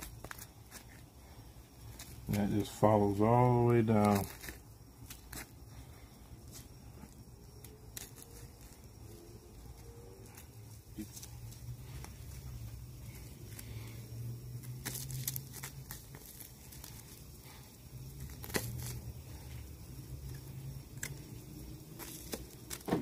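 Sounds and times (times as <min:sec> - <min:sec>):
steady low hum: 0:00.0 - 0:23.0
knife tearing meat: 0:18.2 - 0:19.0.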